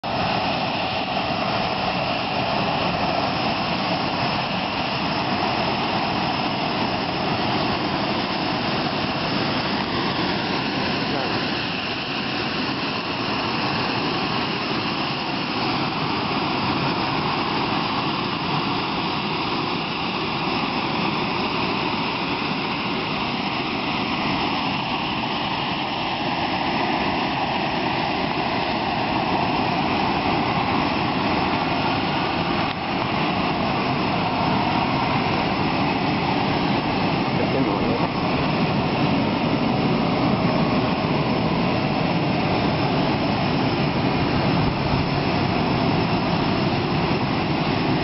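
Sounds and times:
jet turbine roar: 0:00.0 - 0:48.0.

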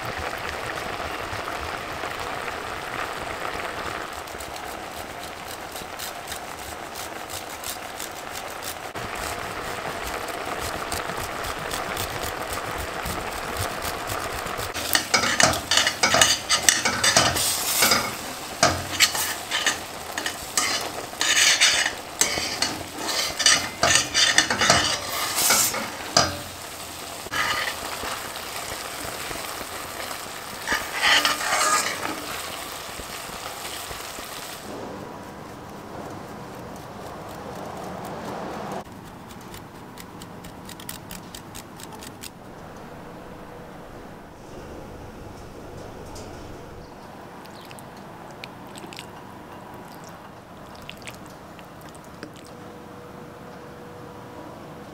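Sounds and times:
pasta bubbling in sauce: 0:00.0 - 0:37.5, 0:47.4 - 0:52.7
metal spoon scraping pot: 0:14.7 - 0:28.8, 0:29.4 - 0:33.1.

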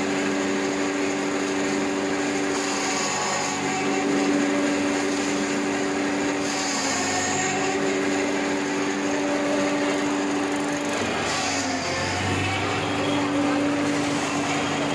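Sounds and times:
machine chopping fodder: 0:00.0 - 0:14.9.

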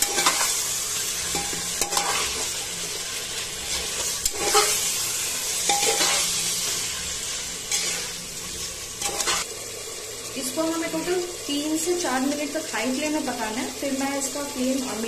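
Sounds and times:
metal spatula scraping pot: 0:00.0 - 0:00.6, 0:01.2 - 0:02.6, 0:03.6 - 0:06.9, 0:07.7 - 0:08.2, 0:09.0 - 0:09.5
meat sizzling in hot oil: 0:00.0 - 0:15.0.

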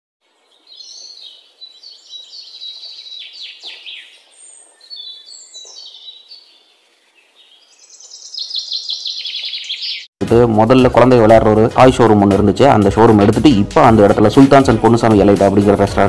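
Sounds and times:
robin singing: 0:00.2 - 0:10.2.

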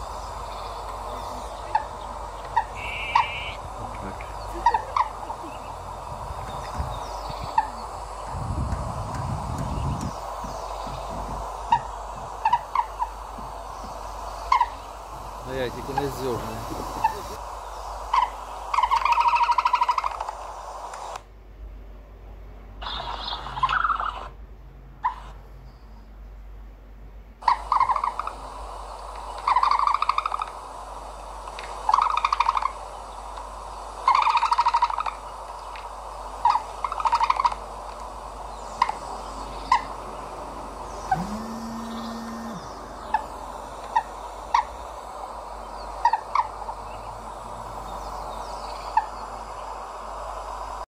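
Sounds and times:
bird trilling calls: 0:00.0 - 0:20.3, 0:22.8 - 0:24.3, 0:27.4 - 0:28.4, 0:29.2 - 0:30.6, 0:31.8 - 0:33.3, 0:34.0 - 0:35.8, 0:36.4 - 0:37.7, 0:38.3 - 0:49.8
low steady hum: 0:00.0 - 0:50.9
bird sharp chirps: 0:00.2 - 0:08.4, 0:22.8 - 0:24.2.

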